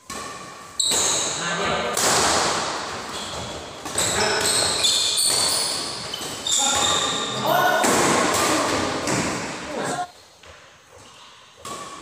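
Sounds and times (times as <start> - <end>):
shoes squeaking on floor: 0.0 - 1.7, 3.0 - 7.8, 9.8 - 12.0
racket hitting shuttlecock: 0.0 - 7.0, 7.6 - 9.6, 10.4 - 12.0.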